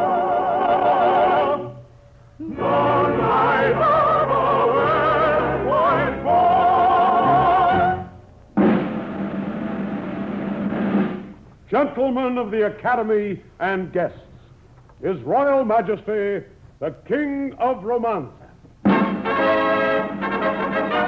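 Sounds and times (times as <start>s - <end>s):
choir singing with vibrato: 0.0s - 1.8s, 2.4s - 8.2s
orchestra playing: 18.9s - 21.0s.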